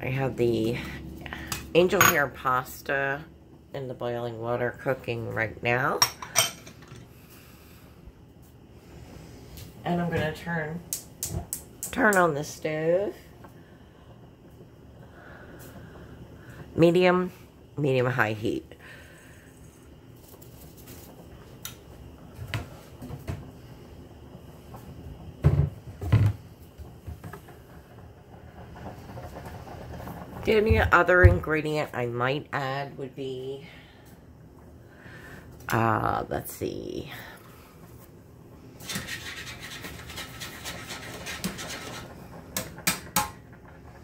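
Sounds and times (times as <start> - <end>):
kitchen items rustling and scraping: 19.1 - 21.6, 37.9 - 44.0.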